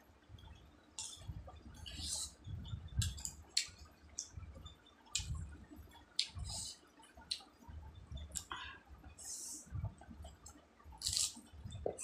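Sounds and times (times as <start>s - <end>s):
wet mouth clicks and smacks: 5.1s - 5.4s, 6.2s - 6.5s.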